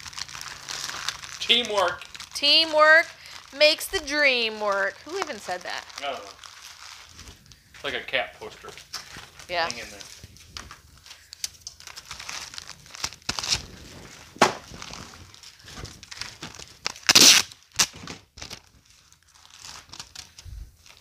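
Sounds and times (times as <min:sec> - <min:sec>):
plastic tearing rip: 0:00.0 - 0:04.1, 0:11.4 - 0:21.0
plastic bags crinkling: 0:00.0 - 0:21.0.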